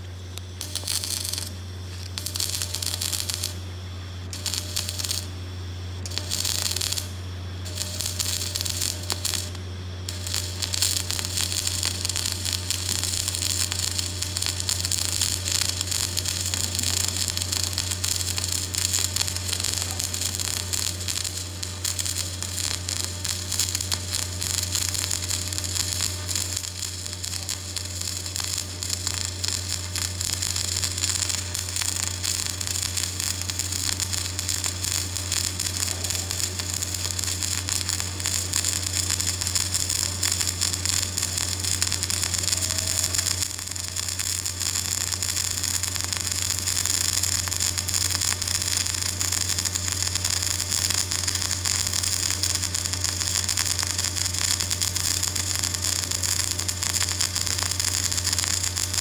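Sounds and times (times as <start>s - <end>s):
low hum: 0.0s - 35.0s
welding arc crackling: 0.0s - 59.0s.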